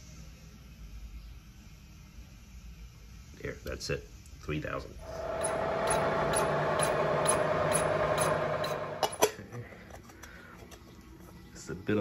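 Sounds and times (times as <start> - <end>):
milling machine whirring: 5.0 - 9.3.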